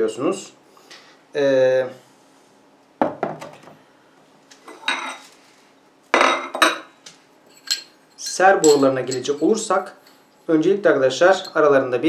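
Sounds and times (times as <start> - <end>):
metal pipes clinking and knocking: 7.5 - 10.3.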